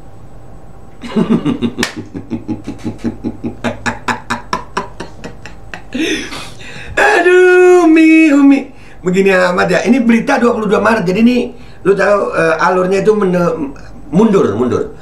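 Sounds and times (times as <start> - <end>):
man laughing hard: 1.0 - 7.0.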